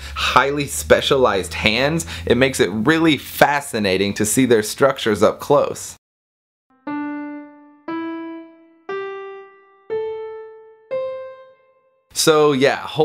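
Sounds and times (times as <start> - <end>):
rising piano-like keyboard notes: 6.7 - 12.1.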